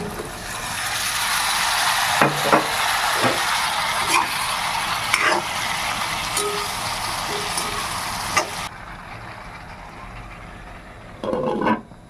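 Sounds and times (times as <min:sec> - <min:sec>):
curry sizzling in a pan: 0:00.0 - 0:08.7.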